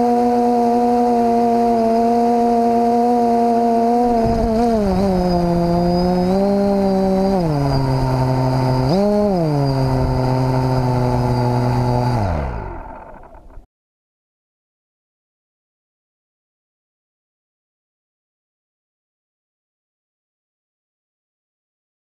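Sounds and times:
drone propellers droning: 0:00.0 - 0:13.6.

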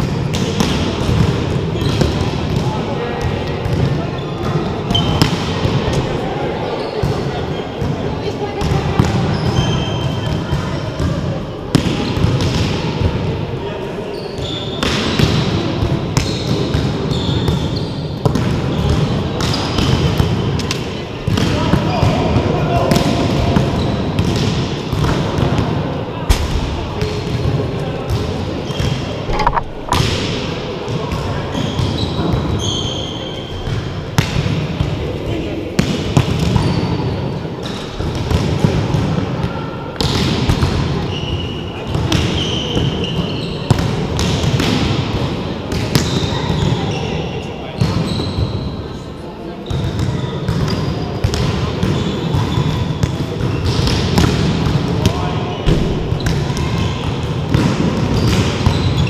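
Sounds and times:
sneakers squeaking on gym floor: 0:01.8 - 0:02.6, 0:04.1 - 0:05.3, 0:09.3 - 0:10.5, 0:14.1 - 0:15.2, 0:16.2 - 0:19.9, 0:28.1 - 0:33.7, 0:41.1 - 0:43.8, 0:45.9 - 0:48.7, 0:58.1 - 0:59.0.

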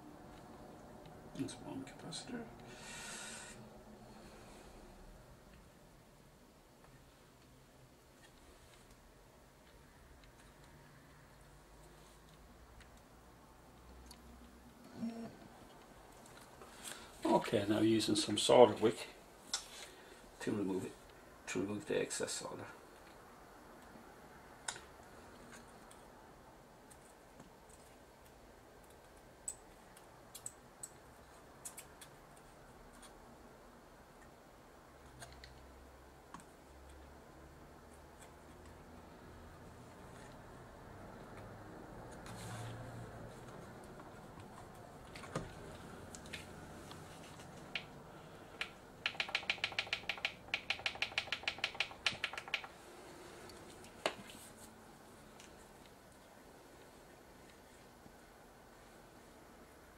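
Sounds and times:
light clicks with ringing tone: 0:48.6 - 0:52.7.

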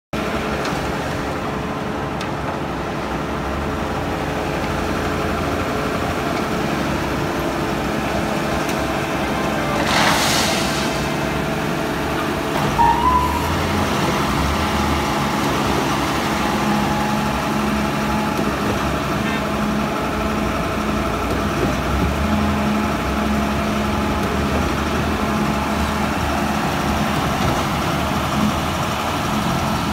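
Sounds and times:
heavy machine engines running: 0:00.2 - 0:29.9
gravel pouring into hopper: 0:09.7 - 0:11.4
short high tone: 0:12.8 - 0:13.8.

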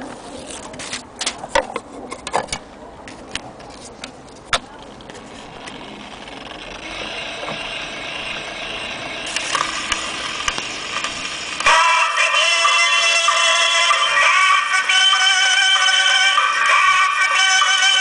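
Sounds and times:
record surface hiss and crackle: 0:00.0 - 0:18.0
faint gramophone music: 0:05.2 - 0:18.0.

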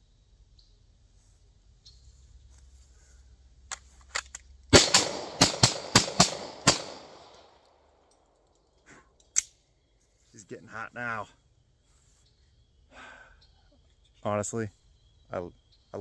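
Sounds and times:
pistol shots: 0:04.7 - 0:07.5.

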